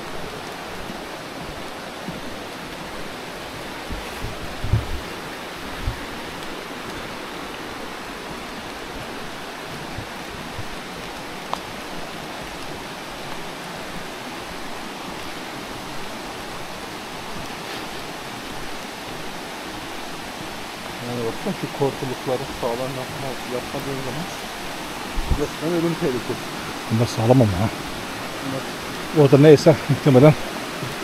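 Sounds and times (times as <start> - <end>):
stream rushing: 0.0 - 31.0
soft low thumps: 3.0 - 7.2, 8.2 - 12.6, 25.0 - 25.6.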